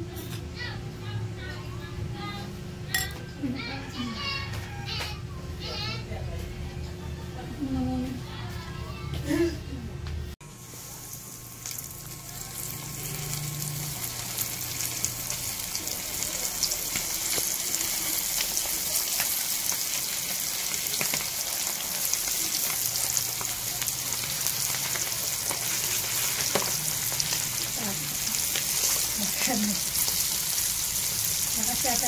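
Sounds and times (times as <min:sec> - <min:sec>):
chicken deep-frying in hot oil: 0:10.4 - 0:32.0.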